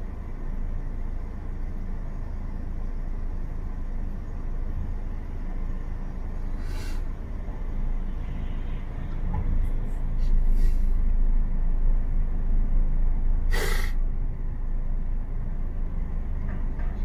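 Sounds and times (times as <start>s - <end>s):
car engine rumble inside cabin: 0.0s - 17.0s
short sharp hiss: 6.6s - 7.1s, 13.5s - 14.0s.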